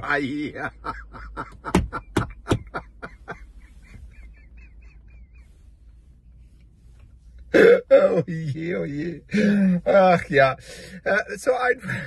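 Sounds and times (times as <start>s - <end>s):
man laughing hard: 0.0s - 5.4s.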